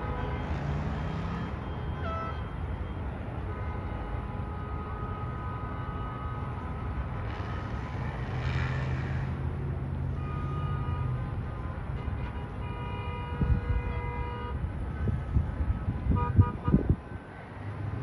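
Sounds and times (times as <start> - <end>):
vehicle horns: 0.0 - 2.7, 3.3 - 7.8, 10.0 - 17.1
passing vehicle rush: 0.0 - 3.4, 6.0 - 12.6, 14.5 - 18.0
traffic rumble: 0.0 - 18.0.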